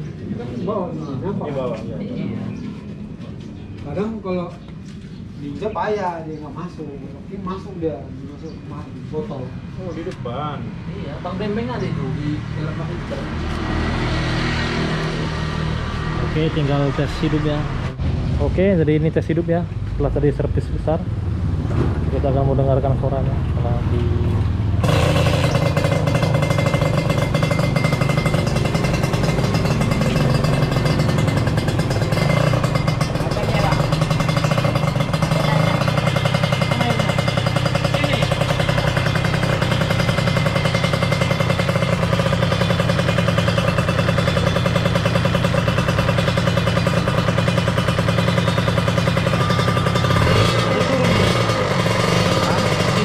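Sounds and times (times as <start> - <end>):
two-stroke engine running: 20.3 - 53.0.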